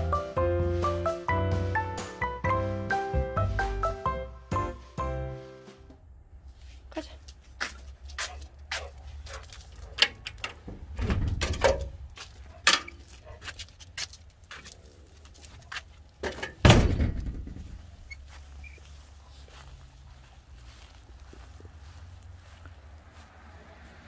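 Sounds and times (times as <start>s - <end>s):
gate latch clicks and clatter: 9.9s - 13.0s
metal gate thumping shut: 10.0s - 12.0s, 16.2s - 17.8s.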